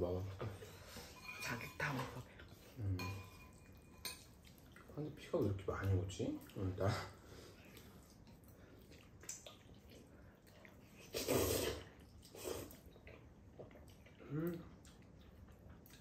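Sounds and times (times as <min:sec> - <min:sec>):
noodles being slurped: 0:08.8 - 0:14.8.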